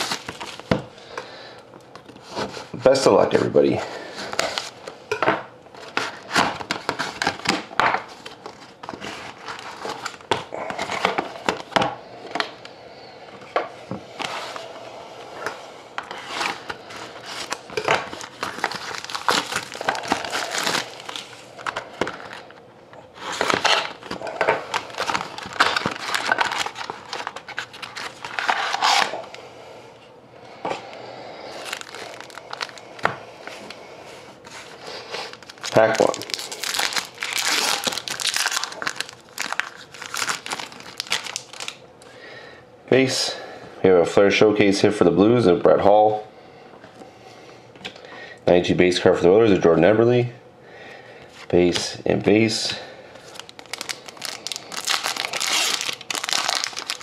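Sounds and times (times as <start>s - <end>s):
shiny wrappers crinkling: 16.4s - 22.4s, 23.3s - 29.1s, 31.5s - 33.1s, 35.2s - 41.8s, 53.2s - 57.0s.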